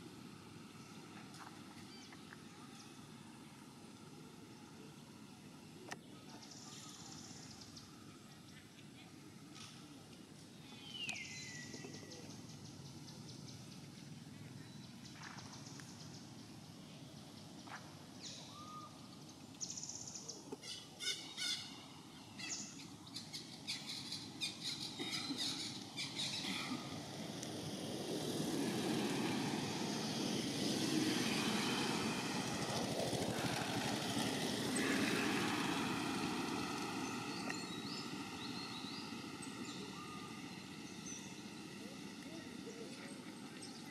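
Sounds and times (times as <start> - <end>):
birds chirping: 10.4 - 43.9
rushing noise: 26.0 - 43.5.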